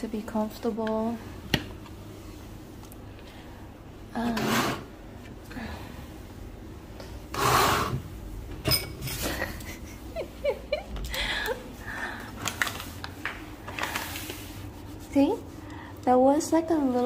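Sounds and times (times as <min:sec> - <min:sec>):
hand wiping table top: 0:14.0 - 0:15.6.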